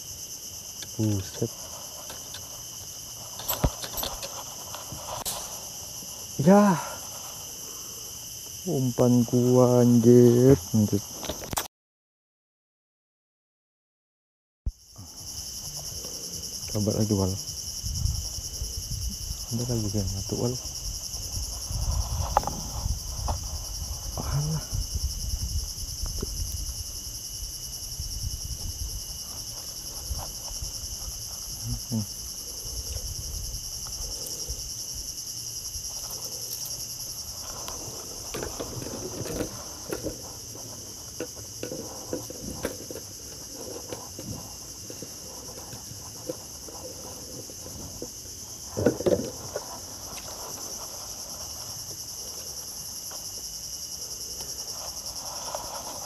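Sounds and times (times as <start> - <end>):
insects chorus: 0.0 - 11.7, 14.7 - 56.0.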